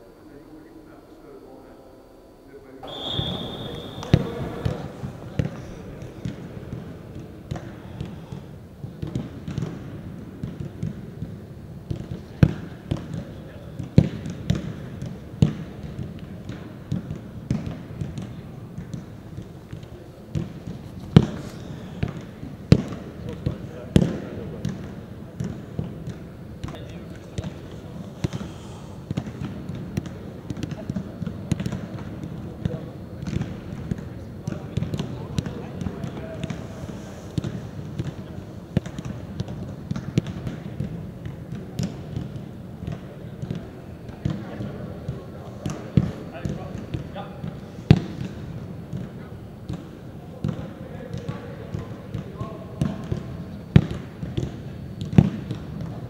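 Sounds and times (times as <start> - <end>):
low background noise: 0.0 - 56.0
footballs being kicked: 2.9 - 27.6.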